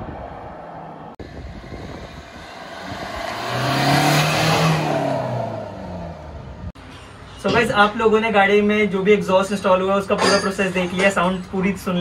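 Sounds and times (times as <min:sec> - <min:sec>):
car exhaust driving past: 0:01.2 - 0:06.8.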